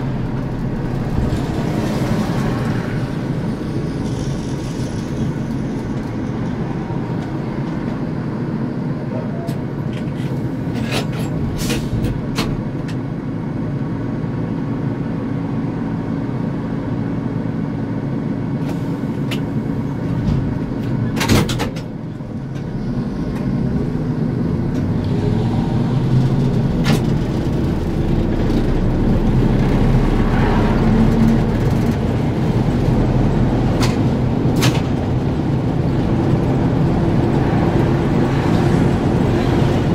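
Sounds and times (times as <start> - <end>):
trolleybus humming: 0.0 - 39.9.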